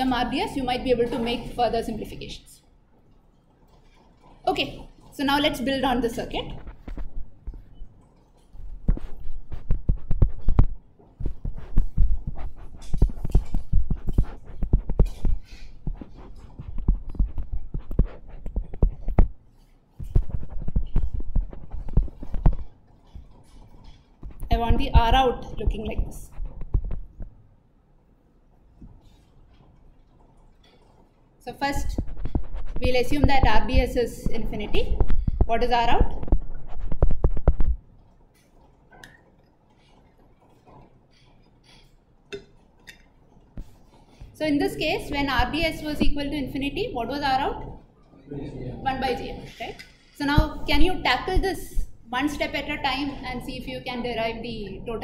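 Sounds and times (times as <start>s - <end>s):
stylus tapping on tablet screen: 8.8s - 19.4s, 24.2s - 27.4s.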